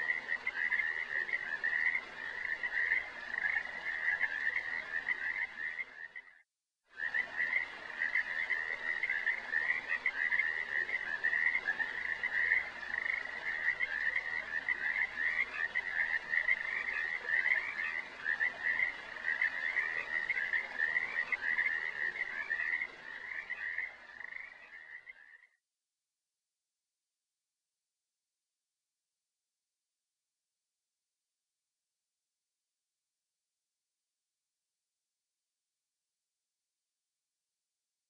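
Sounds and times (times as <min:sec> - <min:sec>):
chorus of pulsing animal calls: 0:07.0 - 0:25.4.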